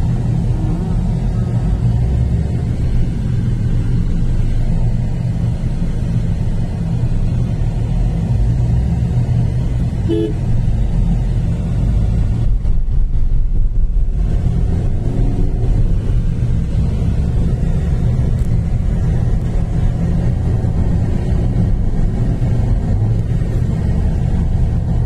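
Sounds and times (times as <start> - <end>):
vehicle engine and tyres rumble: 0.0 - 25.0
horn toot: 10.0 - 10.4.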